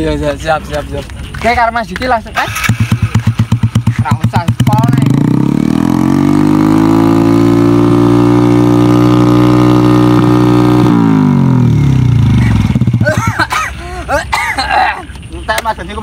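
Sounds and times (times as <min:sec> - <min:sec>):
motorcycle engine revving: 0:02.4 - 0:13.8.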